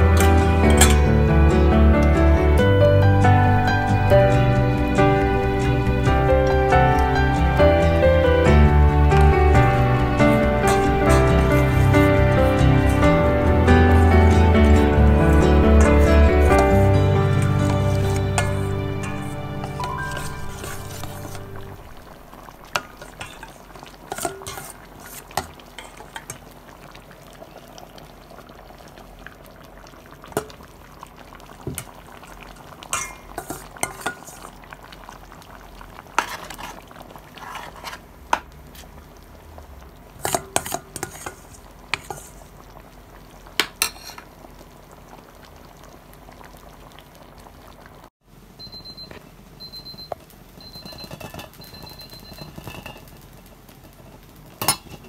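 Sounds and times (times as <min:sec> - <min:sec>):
metal ladle scraping pot: 0:00.0 - 0:01.2, 0:09.6 - 0:22.1, 0:22.7 - 0:26.4, 0:32.9 - 0:34.6, 0:36.2 - 0:38.1, 0:40.2 - 0:42.5, 0:43.8 - 0:44.3, 0:52.4 - 0:53.1.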